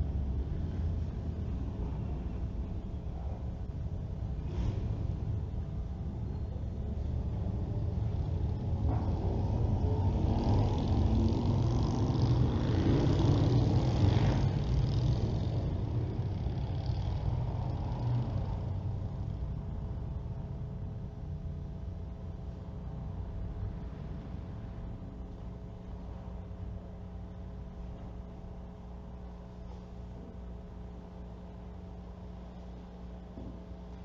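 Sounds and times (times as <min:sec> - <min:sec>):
passing vehicle rumble: 0:00.0 - 0:20.4.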